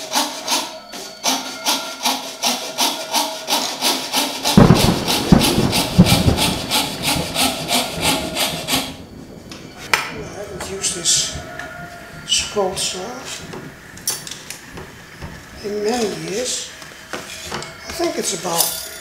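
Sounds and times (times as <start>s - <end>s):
fret saw cutting wood: 0.0s - 9.0s
deep knocks: 4.5s - 15.6s.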